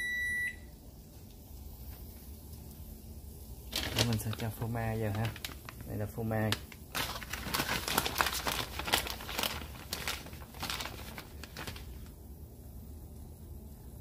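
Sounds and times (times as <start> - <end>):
plastic bag crinkling: 3.6 - 12.2.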